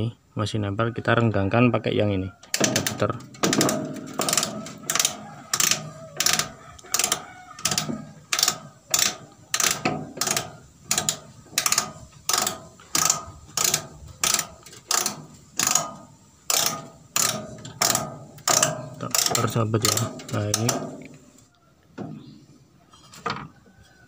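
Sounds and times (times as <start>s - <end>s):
ratchet-like clicking: 2.4s - 21.5s.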